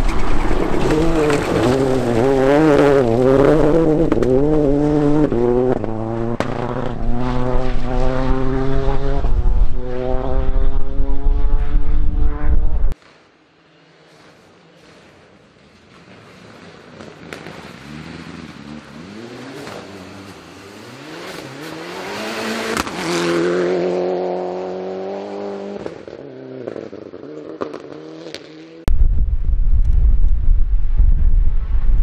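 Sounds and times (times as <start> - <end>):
rally car engine accelerating: 0.0 - 13.0, 17.5 - 28.8
wind buffeting microphone: 28.9 - 32.0.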